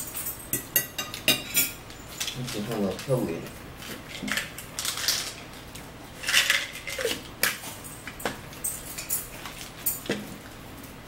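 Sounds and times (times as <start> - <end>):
forks and dishes clinking: 0.0 - 3.2, 6.2 - 10.2.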